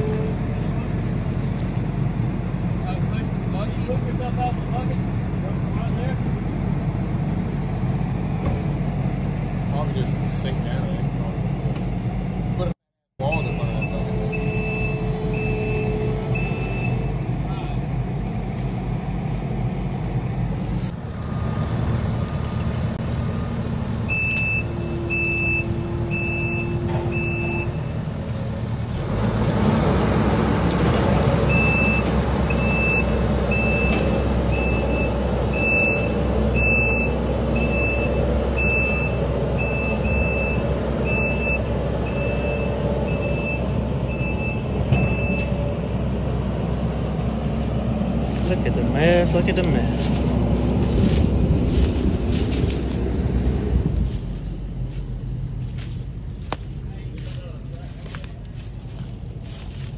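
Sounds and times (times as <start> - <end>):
diesel engine running: 0.0 - 59.9
reversing alarm beeping: 13.2 - 17.3, 24.1 - 28.0, 31.5 - 45.6.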